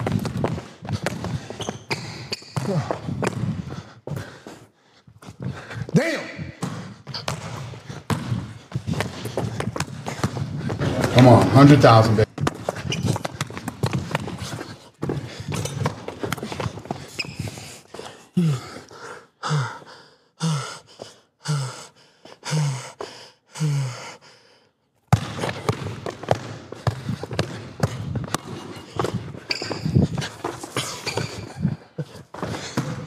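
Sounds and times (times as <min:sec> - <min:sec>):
feet and ball knocking on court: 0:06.6 - 0:11.6, 0:25.1 - 0:31.4.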